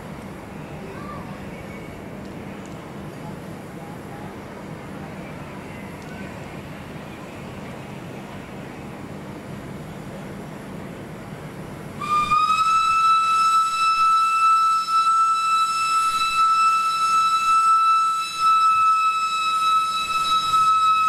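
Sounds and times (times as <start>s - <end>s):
steam whistle blast: 12.0s - 21.0s.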